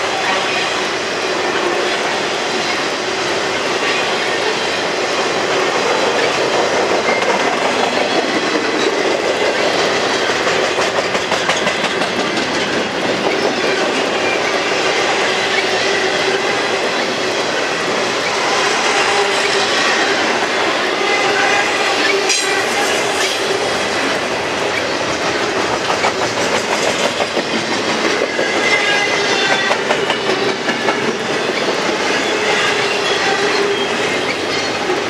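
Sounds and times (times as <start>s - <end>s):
freight train rumbling past: 0.0s - 35.0s
wheels clicking over rail joints: 5.7s - 14.8s, 22.2s - 35.0s.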